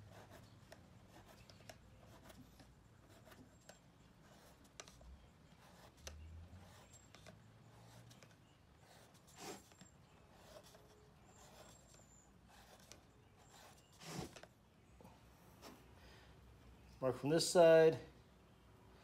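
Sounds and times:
pencil strokes on plastic pipe: 0.0 - 14.5
soft scrapes: 13.4 - 14.5.

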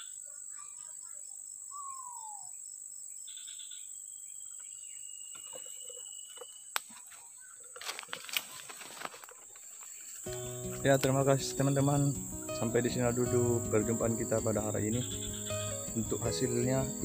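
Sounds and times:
bird chirps: 0.0 - 7.8, 10.3 - 17.0
rustling: 6.9 - 10.5
high-pitched insect drone: 10.3 - 17.0.

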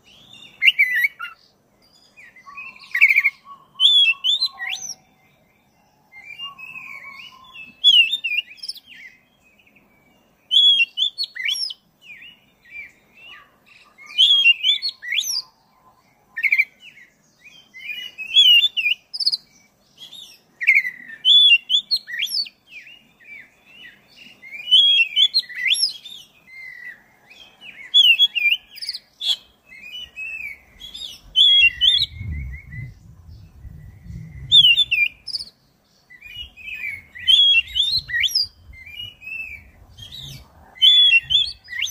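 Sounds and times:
bird singing whistled phrases: 0.1 - 1.4, 2.1 - 5.2, 6.1 - 15.6, 16.3 - 41.9
low rumble: 31.2 - 35.3.

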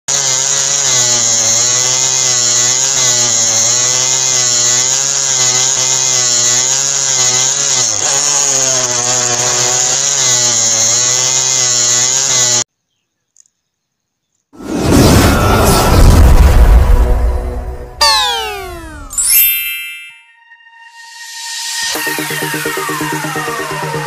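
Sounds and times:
small drill motor whining: 0.1 - 12.6, 18.0 - 19.8.

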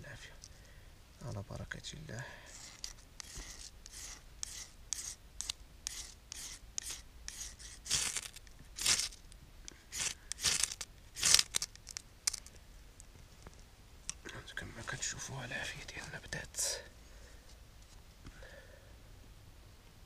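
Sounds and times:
fire steel scraping: 2.4 - 12.5.

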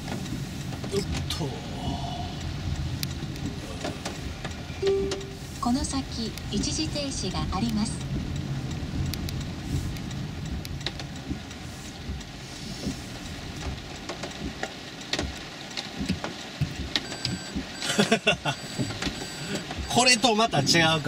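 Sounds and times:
light rain ticking on a car: 0.0 - 21.0
low road rumble: 0.0 - 21.0
short electronic beeps: 4.8 - 5.4, 17.0 - 17.9, 18.6 - 20.0.

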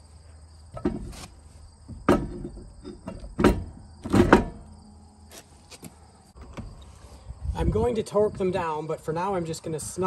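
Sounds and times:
insects chirping: 0.0 - 10.0
metal lug nuts clinking: 0.7 - 4.8.

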